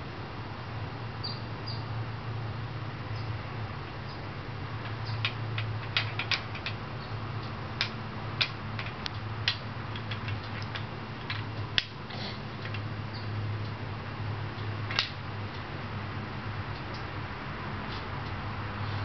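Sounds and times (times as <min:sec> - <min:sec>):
steady low hum: 0:00.0 - 0:19.0
wooden beads clicking on wires: 0:04.8 - 0:06.8, 0:07.4 - 0:12.0.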